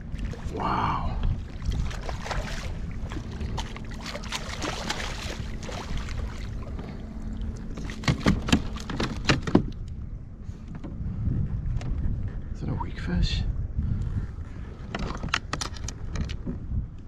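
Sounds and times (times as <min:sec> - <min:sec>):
wind buffeting microphone: 0:00.0 - 0:17.0
fish splashing at surface: 0:04.0 - 0:06.3
sharp knocks on kayak: 0:07.8 - 0:09.8.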